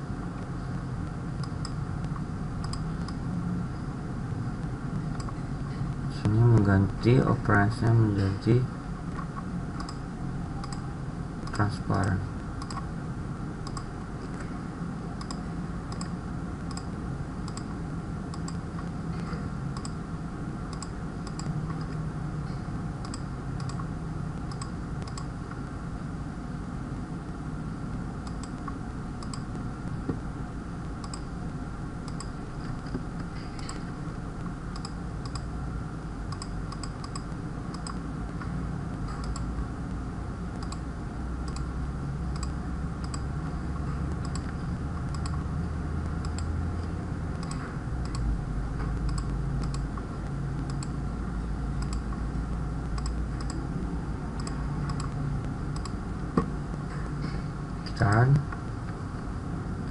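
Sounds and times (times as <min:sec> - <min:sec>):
steady low hum: 0:00.0 - 0:59.9
computer mouse and keyboard clicks: 0:01.4 - 0:03.2, 0:05.0 - 0:05.4, 0:10.6 - 0:12.9, 0:13.6 - 0:14.5, 0:15.2 - 0:20.0, 0:20.7 - 0:22.0, 0:28.2 - 0:29.6, 0:31.0 - 0:31.3, 0:32.0 - 0:34.0, 0:34.7 - 0:35.5, 0:36.3 - 0:38.5, 0:39.1 - 0:39.6, 0:40.5 - 0:40.8, 0:42.3 - 0:45.4, 0:46.0 - 0:50.0, 0:51.8 - 0:52.2, 0:53.0 - 0:53.6, 0:54.4 - 0:57.1.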